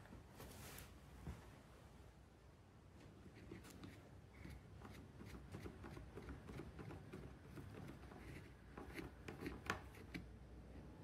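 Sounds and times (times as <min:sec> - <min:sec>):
screwdriver clicks and scrapes on plastic: 0:03.4 - 0:10.3.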